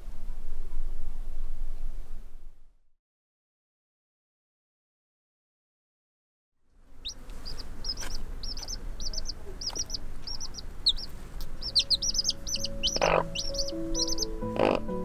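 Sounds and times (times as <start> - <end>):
chicks peeping: 7.0 - 15.0
hen clucking: 7.0 - 15.0.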